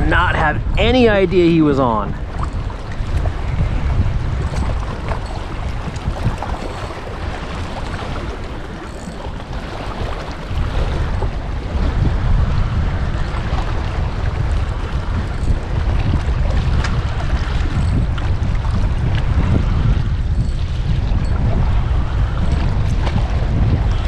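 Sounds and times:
wind buffeting microphone: 0.0s - 24.0s.

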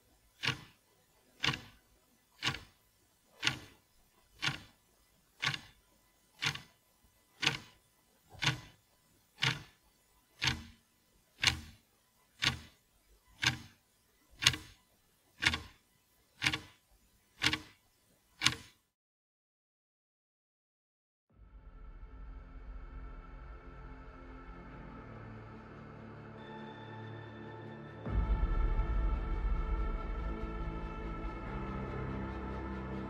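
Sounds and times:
hour meter ticking: 0.0s - 18.8s.

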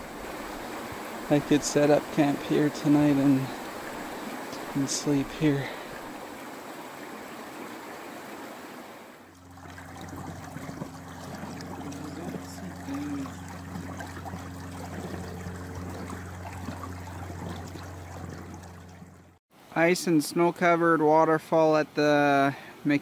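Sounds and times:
low steady hum: 0.0s - 7.1s, 9.2s - 19.4s
creek water trickling: 0.0s - 20.5s.

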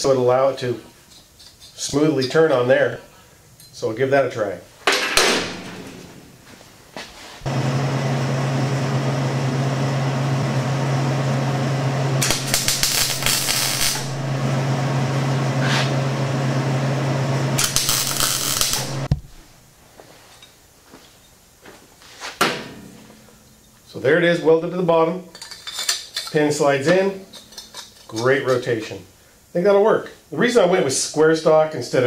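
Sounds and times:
welder hum: 7.4s - 19.4s
arc welding crackling and sizzling: 12.0s - 14.7s, 17.1s - 19.2s.

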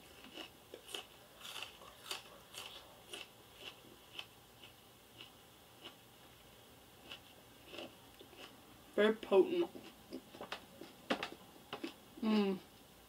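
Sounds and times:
onion being chewed: 0.0s - 6.4s, 7.0s - 8.6s.

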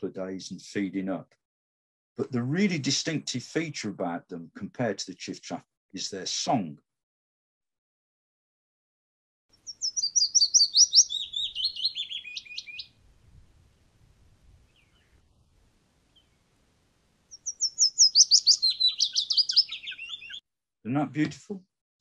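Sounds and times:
warbler song: 9.5s - 16.6s, 17.3s - 20.4s.

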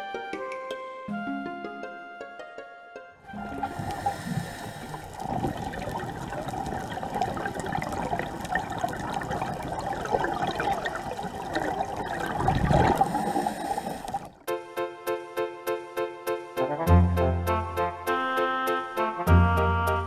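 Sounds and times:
scuba exhaust bubbles: 3.3s - 14.5s.

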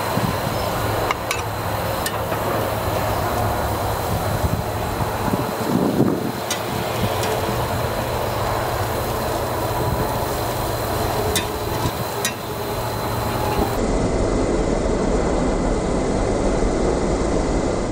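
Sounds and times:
metal spatula clicking on grate: 11.3s - 11.6s.

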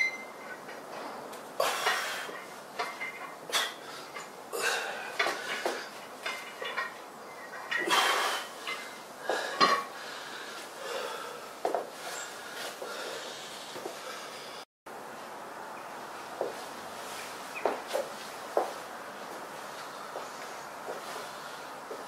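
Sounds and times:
weight plates clinking and rattling: 1.8s - 3.5s, 5.0s - 10.0s
hard breathing: 3.5s - 6.0s, 7.8s - 14.7s, 19.6s - 22.0s
metal bar clanking down: 5.2s - 9.0s.

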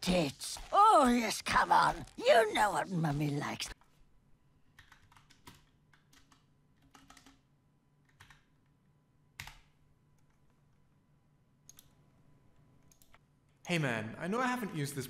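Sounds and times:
typing on keyboard: 4.7s - 8.6s, 9.4s - 10.4s.

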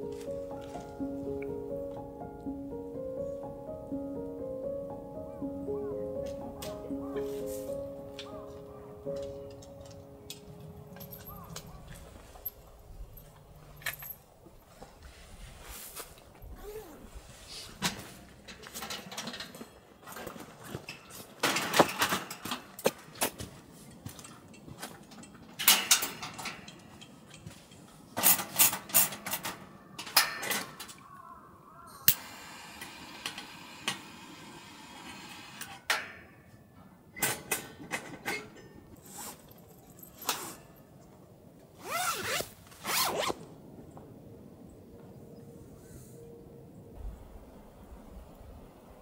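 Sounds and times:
camping gear rustling and clacking: 0.0s - 2.0s, 6.3s - 31.2s, 35.9s - 44.1s
zippers being pulled: 16.5s - 17.1s, 40.2s - 40.6s, 41.8s - 43.5s.

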